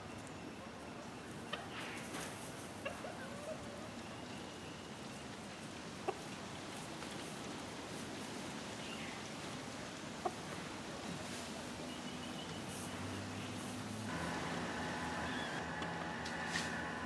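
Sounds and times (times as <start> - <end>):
steady low hiss: 0.0 - 17.0
chickens clucking: 1.3 - 4.1, 6.0 - 7.3, 10.2 - 11.7, 14.1 - 17.0.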